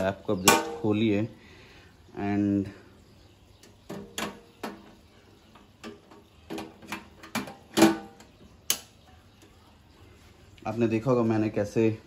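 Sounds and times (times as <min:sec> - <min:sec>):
metal clunk: 0:00.4 - 0:01.0, 0:05.8 - 0:08.3.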